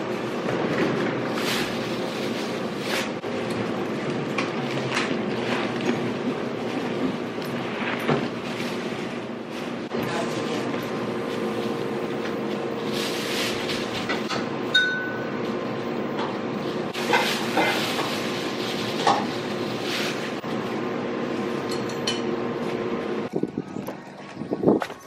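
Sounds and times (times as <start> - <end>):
plastic bag rustling: 0.0 - 3.8, 4.5 - 14.3, 16.6 - 20.5
steady hum: 0.0 - 25.0.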